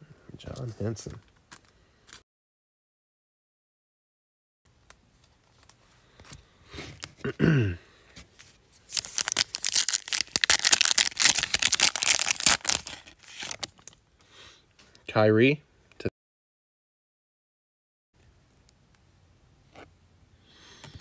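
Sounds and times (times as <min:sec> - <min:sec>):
foil wrapper tearing and crinkling: 0:08.9 - 0:14.0.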